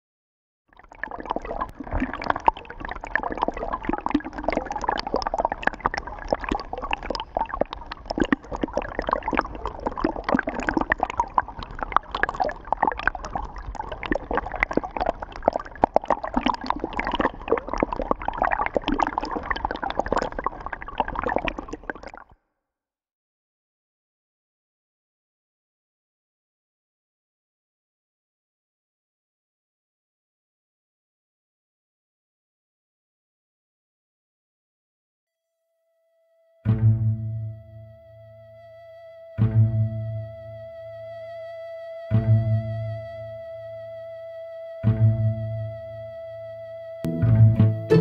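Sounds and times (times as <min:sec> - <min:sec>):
stream gurgling over pebbles: 0:00.8 - 0:22.2.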